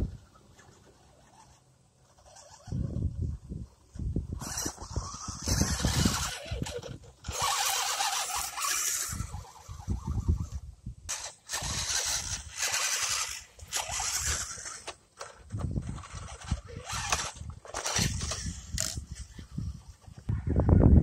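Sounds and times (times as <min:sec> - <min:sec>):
electric motor and gears whining: 0:00.0 - 0:20.3.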